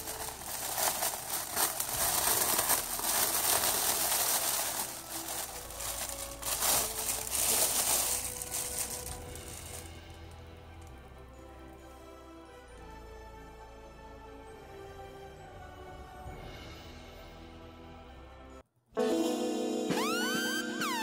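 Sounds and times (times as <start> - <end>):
plastic bag crinkling: 0.0 - 10.0
music: 0.0 - 21.0.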